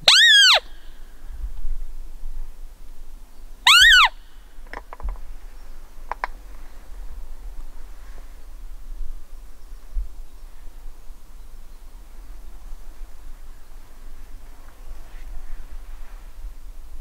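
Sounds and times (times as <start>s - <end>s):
high squeak of deer call: 0.0s - 0.9s, 3.6s - 4.2s.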